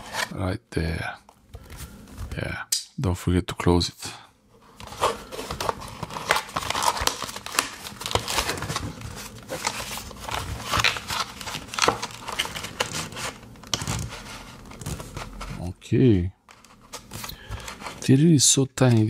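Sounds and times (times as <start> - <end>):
paperboard crinkling and rustling: 0.0 - 0.4, 4.6 - 15.7, 16.5 - 18.2, 18.8 - 19.0.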